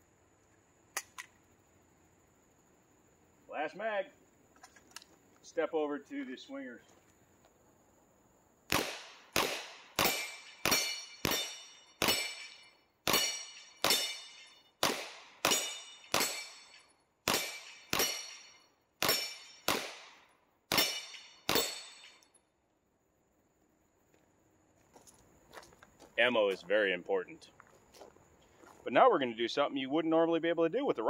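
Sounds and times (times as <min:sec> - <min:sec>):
suppressed pistol shots: 0:08.7 - 0:18.4, 0:19.0 - 0:22.2
steel target ringing: 0:10.0 - 0:14.7, 0:15.4 - 0:19.7, 0:20.7 - 0:22.2.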